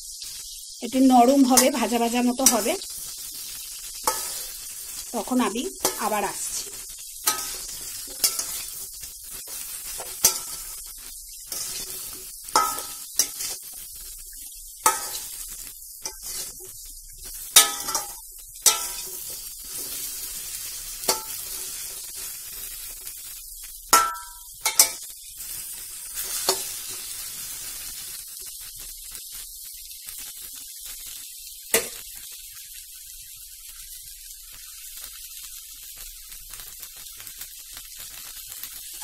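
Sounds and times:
vegetables sizzling in oil: 0.0 - 39.0
metal spatula scraping pan: 4.0 - 4.6, 5.8 - 8.8, 9.5 - 10.8, 11.5 - 13.7, 14.8 - 15.4, 16.0 - 16.6, 17.6 - 20.2, 21.0 - 21.8.

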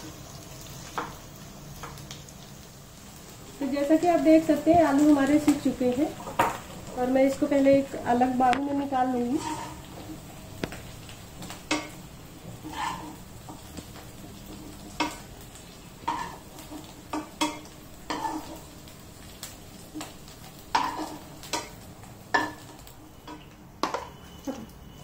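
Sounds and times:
potatoes sizzling faintly: 0.0 - 25.0
metal spoon scraping potatoes: 9.3 - 9.9, 12.6 - 13.2.

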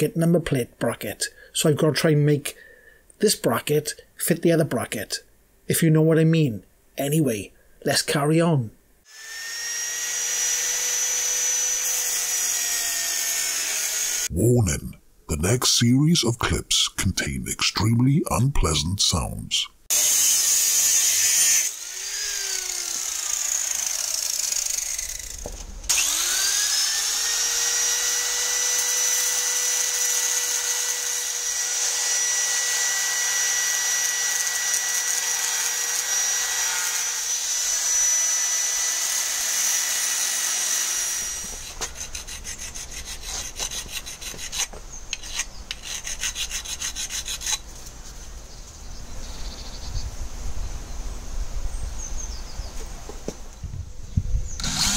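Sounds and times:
angle grinder grinding metal: 9.1 - 14.3, 19.9 - 47.6, 54.6 - 54.9
clicks and scrapes: 41.5 - 48.0.

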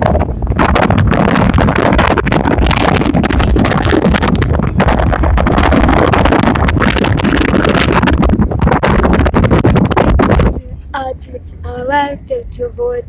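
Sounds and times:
vehicle rumble: 0.0 - 13.0
wind buffeting microphone: 0.0 - 13.0.

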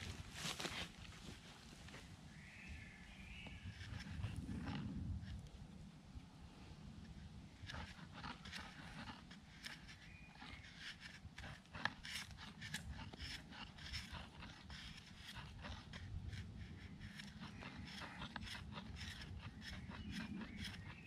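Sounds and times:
knife scraping wooden pole: 3.3 - 5.4, 7.5 - 21.0.

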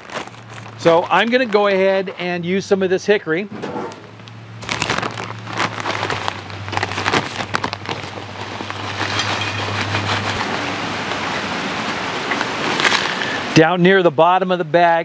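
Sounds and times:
bag crinkling: 0.0 - 2.6, 3.5 - 10.9, 12.6 - 13.4.

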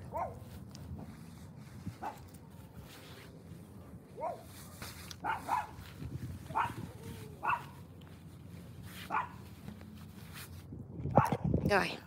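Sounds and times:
dog barking: 0.1 - 0.4, 4.2 - 4.5, 5.2 - 5.8, 6.5 - 6.8, 7.4 - 7.8, 9.1 - 9.4, 11.2 - 11.4.

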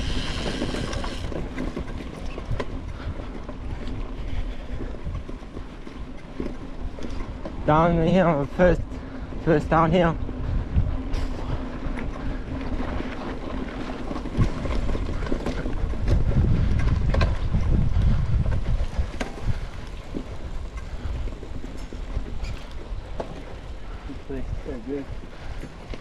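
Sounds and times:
tyres rumbling on rough ground: 0.0 - 26.0
wind rushing over microphone: 7.2 - 25.6.

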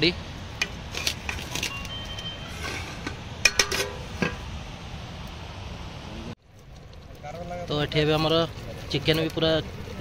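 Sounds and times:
steady outdoor hiss: 0.0 - 10.0
cooking utensils clinking on pots: 0.6 - 4.4.

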